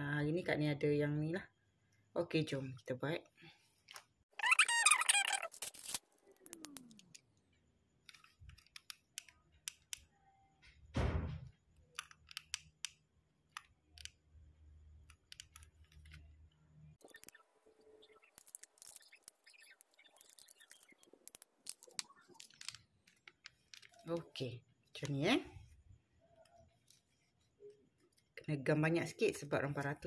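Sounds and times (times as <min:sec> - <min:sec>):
thump: 0:10.9 - 0:11.5.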